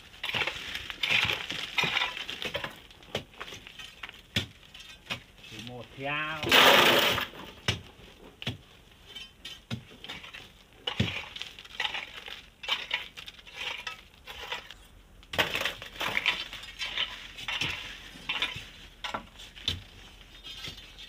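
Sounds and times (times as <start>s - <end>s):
gritty scraping in gravel: 0.0s - 21.0s
crowbars striking gravel: 0.2s - 7.8s.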